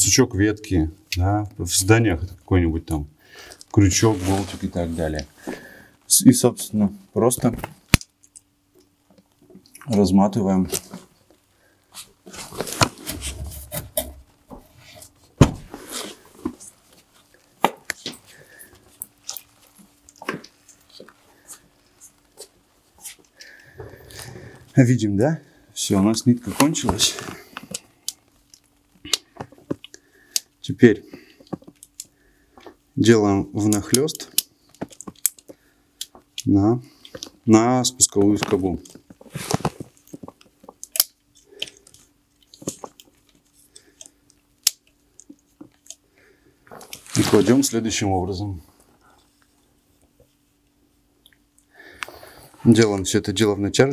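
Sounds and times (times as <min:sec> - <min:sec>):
faint steady hum: 0:00.0 - 0:53.9
gloved hands rustling: 0:03.4 - 0:06.1, 0:09.9 - 0:24.8, 0:25.9 - 0:32.9, 0:33.6 - 0:46.0, 0:46.7 - 0:50.5
handling clicks and rustles: 0:25.9 - 0:30.5.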